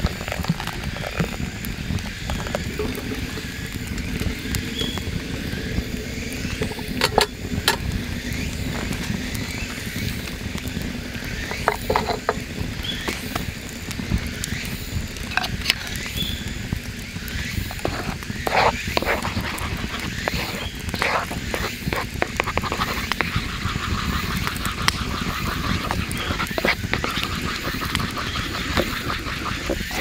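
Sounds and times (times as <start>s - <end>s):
tableware clicking and knocking: 11.7s - 12.4s.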